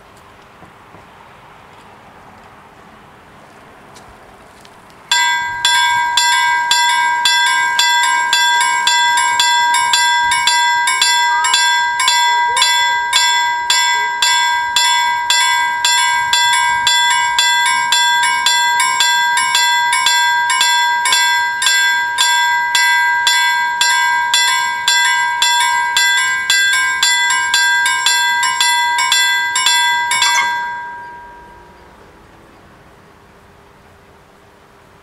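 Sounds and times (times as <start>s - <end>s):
level crossing bells ringing: 5.1s - 32.0s.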